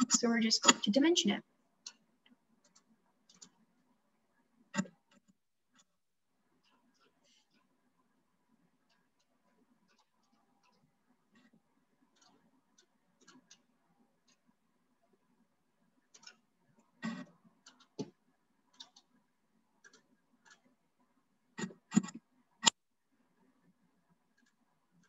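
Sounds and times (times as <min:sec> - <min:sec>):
mouse and keyboard clicks: 0:16.0 - 0:16.4, 0:17.0 - 0:19.1, 0:19.8 - 0:20.8, 0:21.6 - 0:22.8.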